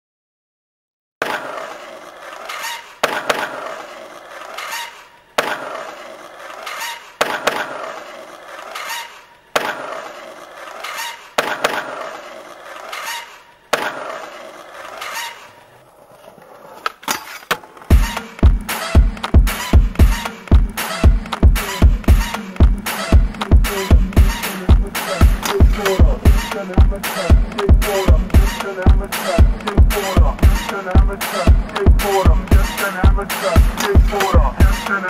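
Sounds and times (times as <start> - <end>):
skateboard clacking on pavement: 1.2 - 35.0
skateboard wheels rolling: 1.2 - 35.0
kick drum beat: 17.9 - 34.8.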